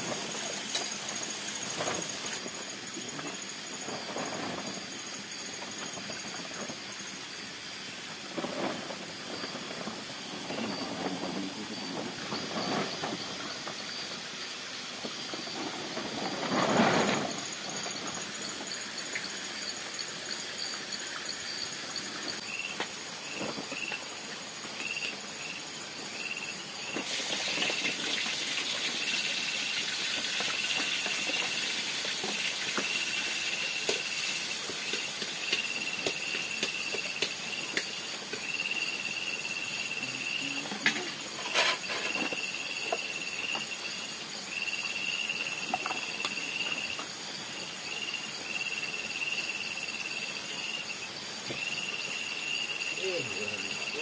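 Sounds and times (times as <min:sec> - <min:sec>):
insects buzzing and chirping: 0:00.0 - 0:54.0
pulsing insect chirp: 0:00.0 - 0:54.0
wok steaming hiss: 0:00.0 - 0:54.0
loud rustle: 0:15.1 - 0:18.6.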